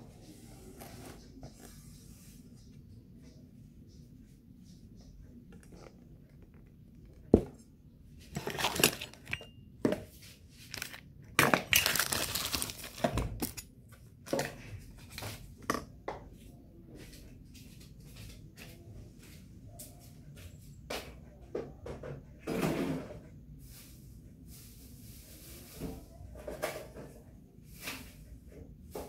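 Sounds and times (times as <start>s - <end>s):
crinkling and scraping: 4.2s - 15.7s.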